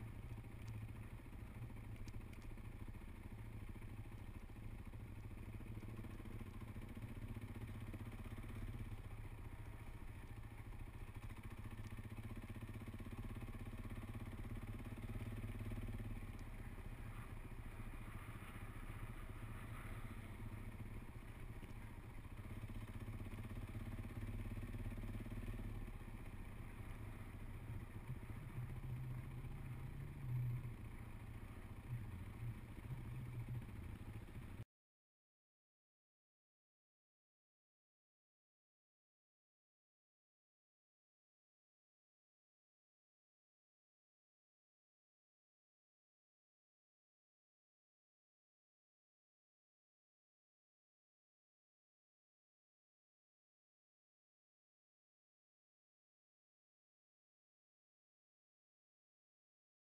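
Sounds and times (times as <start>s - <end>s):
motorcycle engine rumble: 0.0s - 34.6s
road noise: 0.0s - 34.6s.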